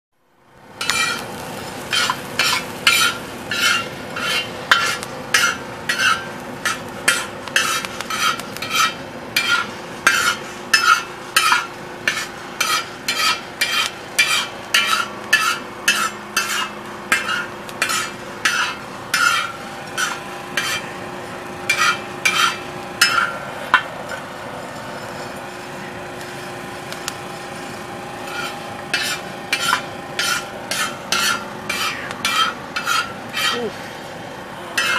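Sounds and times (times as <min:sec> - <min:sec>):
steady hum: 0:00.3 - 0:34.9
spatula scraping coffee beans: 0:00.8 - 0:01.3, 0:01.9 - 0:20.9, 0:21.7 - 0:23.3, 0:28.2 - 0:33.8.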